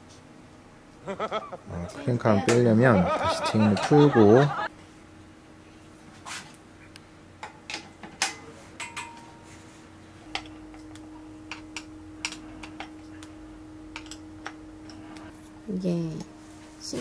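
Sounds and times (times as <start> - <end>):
steady low hum: 0.0 - 17.0
bicycle parts metallic clicks: 14.0 - 15.0.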